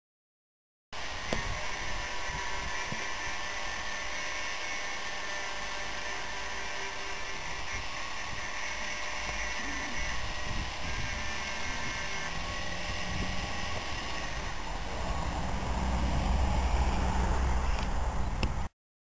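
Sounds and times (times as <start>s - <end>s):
low rumble: 12.4s - 18.6s.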